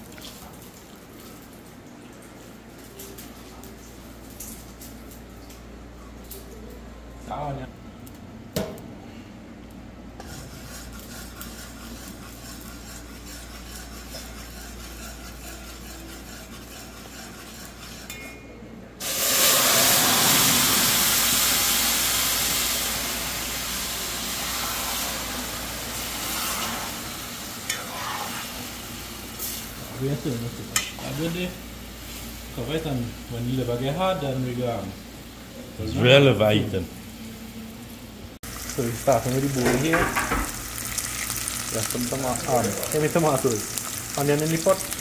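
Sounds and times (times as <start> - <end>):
sugar sizzling: 10.2 - 18.2, 19.0 - 35.0, 38.4 - 45.0
spoon stirring: 10.2 - 18.4
liver sizzling in a pot: 19.0 - 36.7, 37.4 - 45.0.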